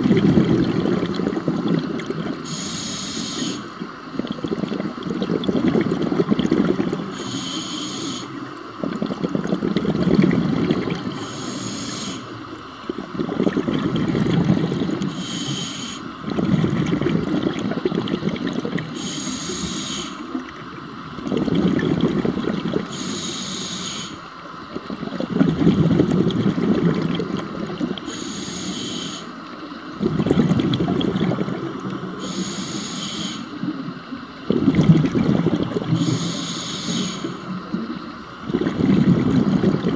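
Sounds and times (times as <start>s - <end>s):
diver breathing through regulator: 2.4s - 3.9s, 6.8s - 8.5s, 11.0s - 12.6s, 13.4s - 16.8s, 18.8s - 20.4s, 22.0s - 24.3s, 28.0s - 29.4s, 32.1s - 33.7s, 35.3s - 37.6s.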